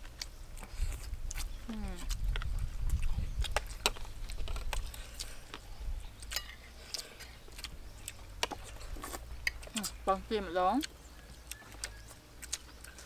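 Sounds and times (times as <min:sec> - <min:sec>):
chewing: 0:00.0 - 0:13.0
spoons scraping on plates: 0:06.3 - 0:06.8.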